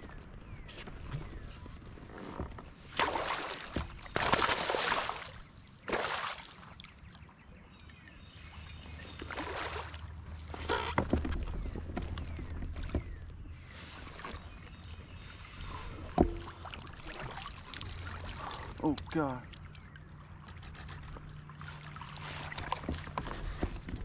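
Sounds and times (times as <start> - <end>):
water splashing: 2.8 - 7.0, 9.0 - 10.9, 13.9 - 19.9.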